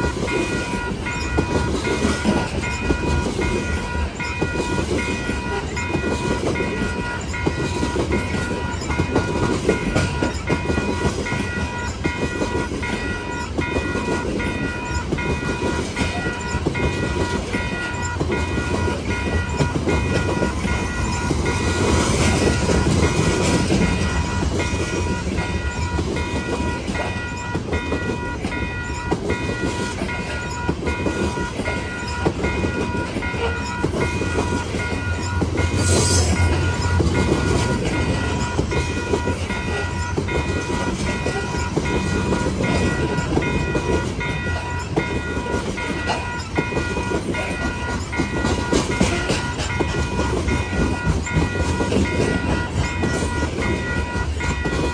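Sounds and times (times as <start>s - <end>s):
train wheels rumbling on rails: 0.0s - 54.9s
wheels clacking over rail joints: 0.0s - 54.9s.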